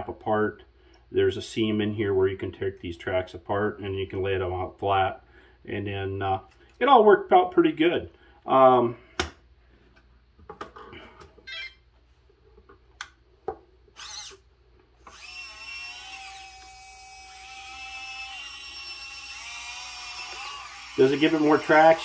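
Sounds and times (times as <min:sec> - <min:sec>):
electric motors whining: 0:14.0 - 0:14.4, 0:15.0 - 0:22.0.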